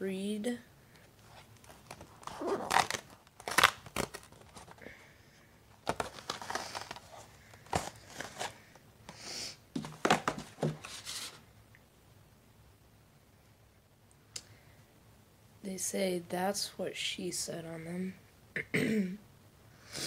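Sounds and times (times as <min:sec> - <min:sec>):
cardboard tearing and crinkling: 0:01.3 - 0:04.8, 0:05.8 - 0:08.6, 0:09.8 - 0:11.4.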